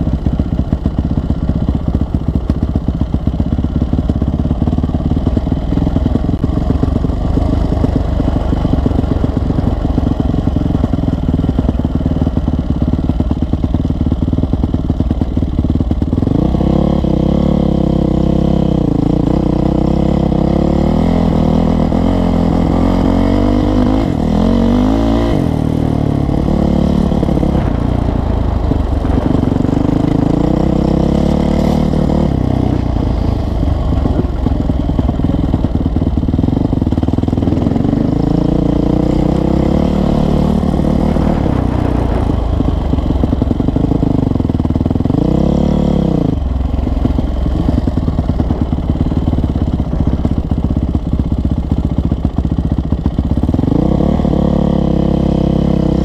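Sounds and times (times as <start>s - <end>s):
dirt bike engine revving: 16.1s - 50.5s, 53.5s - 56.0s.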